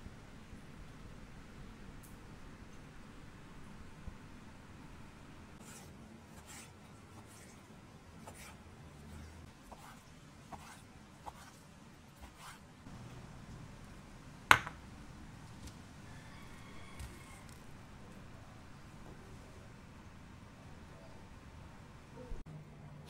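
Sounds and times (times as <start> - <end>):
sharp knock on cutting board: 14.5 - 14.8.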